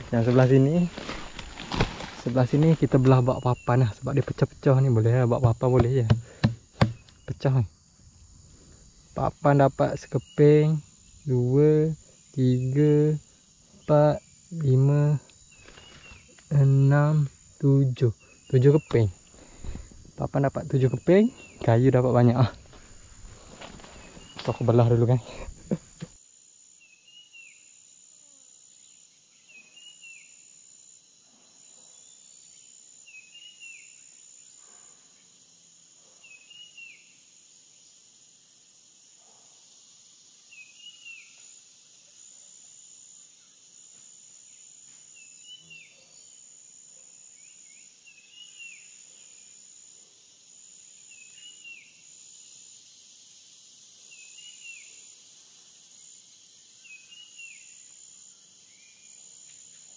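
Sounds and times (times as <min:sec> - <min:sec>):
forest insects shrilling: 0:00.0 - 0:59.9.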